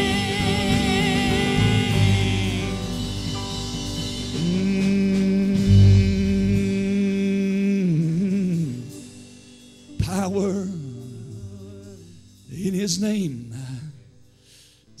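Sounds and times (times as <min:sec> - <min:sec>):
live gospel music: 0:00.0 - 0:14.8
low thump: 0:05.6 - 0:06.6.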